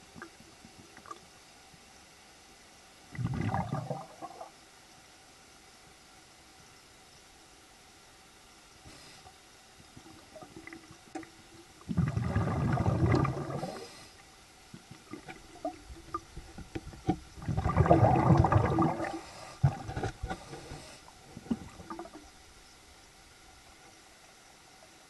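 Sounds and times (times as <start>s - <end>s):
water clicks and gurgles: 0.0s - 1.7s, 3.0s - 4.6s, 9.2s - 25.0s
air bubbling underwater: 3.1s - 4.5s, 11.9s - 13.8s, 17.4s - 20.4s.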